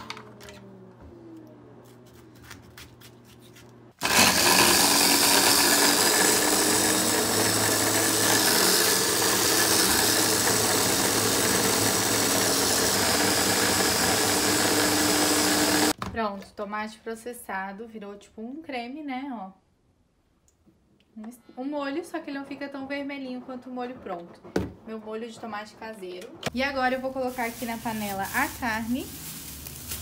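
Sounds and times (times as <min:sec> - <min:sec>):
electric food chopper running: 0:04.0 - 0:16.0.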